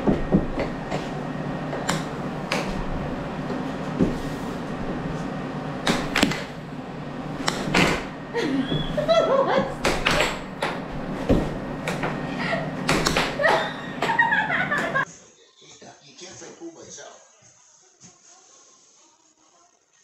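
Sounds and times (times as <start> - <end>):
air hockey puck knocking: 0.0 - 12.2, 12.8 - 14.2
air blower hum: 0.0 - 15.1.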